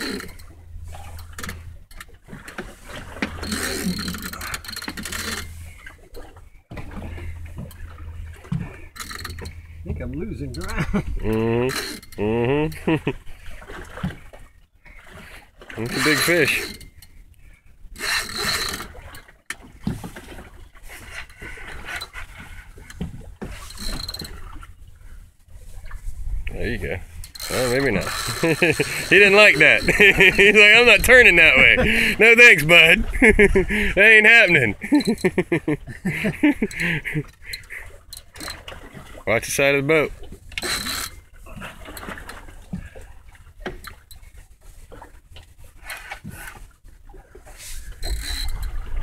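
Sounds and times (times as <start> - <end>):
fishing reel whirring and ratcheting: 18.0 - 18.9, 27.2 - 29.1, 40.6 - 41.2, 48.0 - 48.7.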